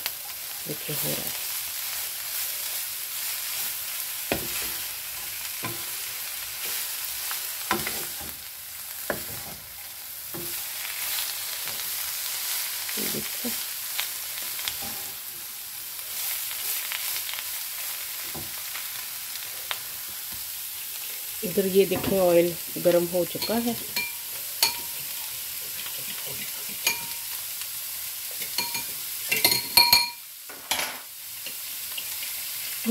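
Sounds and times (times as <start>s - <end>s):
vegetables sizzling in a frying pan: 0.0s - 32.9s
wooden spatula scraping a pan: 1.9s - 13.6s, 14.6s - 15.5s, 24.4s - 27.0s.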